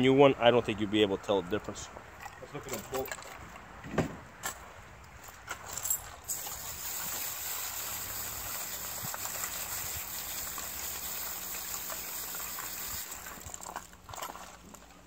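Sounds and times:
hose nozzle spray hissing: 0:06.3 - 0:13.4.

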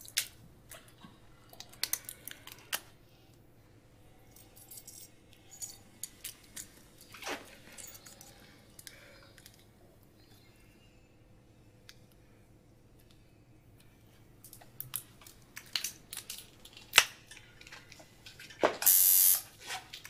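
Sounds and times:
metallic clicks and clinks: 0:04.3 - 0:06.8.

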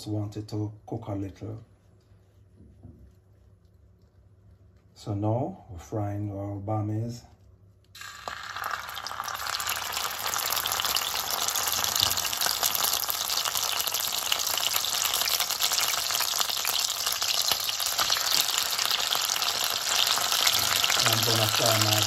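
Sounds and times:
food sizzling in oil: 0:08.0 - 0:22.0.

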